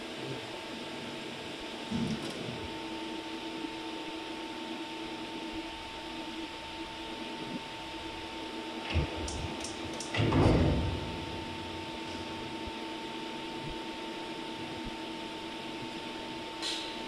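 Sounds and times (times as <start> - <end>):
machine hum with constant tone: 0.0 - 17.0
loud rough rumble: 8.9 - 12.8
metal disc thump: 10.1 - 12.6.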